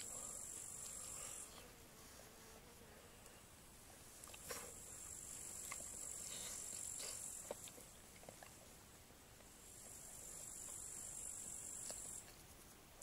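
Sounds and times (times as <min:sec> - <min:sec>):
insects chirring: 0:00.0 - 0:01.6, 0:09.6 - 0:12.8
person chewing meat: 0:05.6 - 0:08.7.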